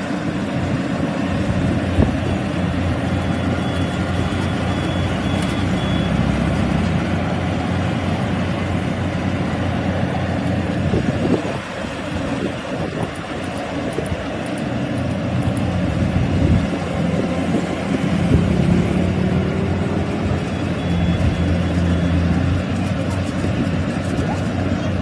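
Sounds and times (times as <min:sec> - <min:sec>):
combine harvester engine running: 0:00.0 - 0:25.0
faint high beep: 0:03.2 - 0:06.5, 0:20.4 - 0:22.4.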